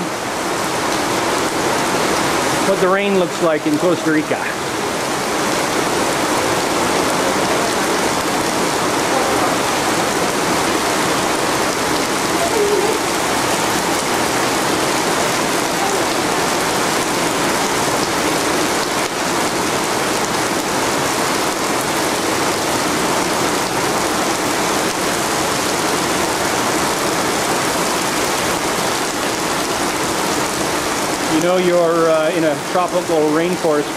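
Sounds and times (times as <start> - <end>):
heavy rain pouring: 0.0 - 33.9.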